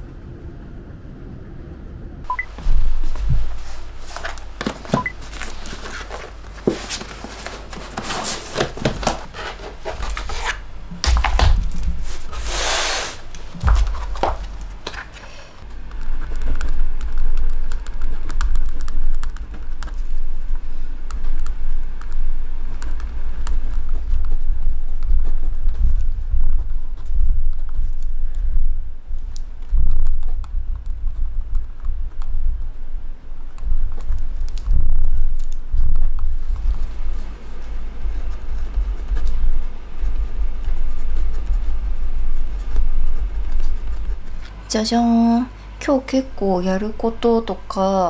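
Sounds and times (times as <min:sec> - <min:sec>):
notebooks knocking and clicking: 0:02.6 - 0:12.2, 0:13.5 - 0:15.2
paper rustle: 0:02.6 - 0:15.4
low thuds: 0:13.4 - 0:15.2.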